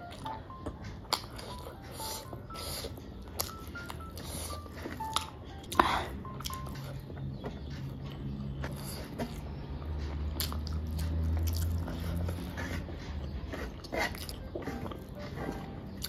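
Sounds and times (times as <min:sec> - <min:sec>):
chewing: 0:00.0 - 0:16.0
fingers working rice on metal plate: 0:11.1 - 0:16.0.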